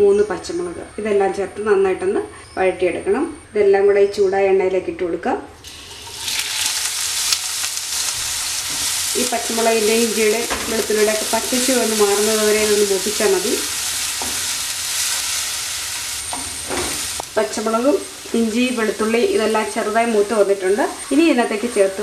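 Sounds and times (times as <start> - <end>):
food sizzling in hot oil: 5.6 - 22.0.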